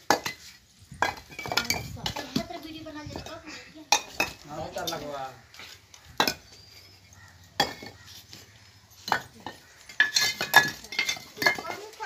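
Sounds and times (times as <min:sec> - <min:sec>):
bricks knocking together: 0:00.0 - 0:02.6, 0:03.9 - 0:05.0, 0:06.1 - 0:06.6, 0:07.6 - 0:08.1, 0:09.0 - 0:12.0.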